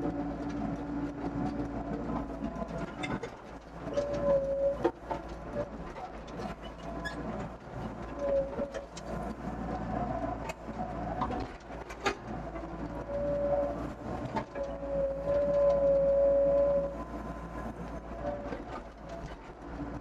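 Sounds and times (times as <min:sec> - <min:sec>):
diesel engine running: 0:00.0 - 0:20.0
hydraulic whine: 0:12.6 - 0:18.0.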